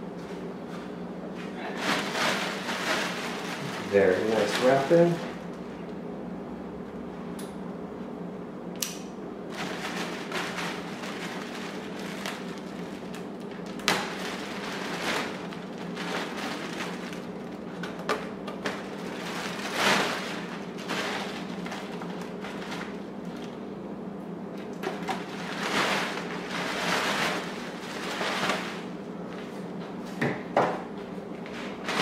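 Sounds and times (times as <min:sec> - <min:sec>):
plastic bag crinkling: 0:01.7 - 0:05.4, 0:09.5 - 0:23.6, 0:24.8 - 0:28.9.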